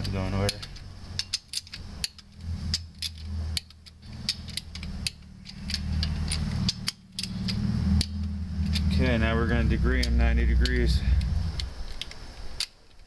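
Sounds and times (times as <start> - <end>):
steady low hum: 0.0 - 13.0
torque wrench ratcheting clicks: 0.0 - 13.0.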